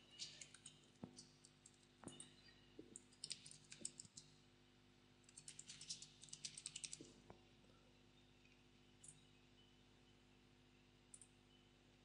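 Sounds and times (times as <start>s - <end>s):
faint keyboard typing: 0.1s - 4.4s, 5.2s - 7.4s, 11.1s - 11.4s.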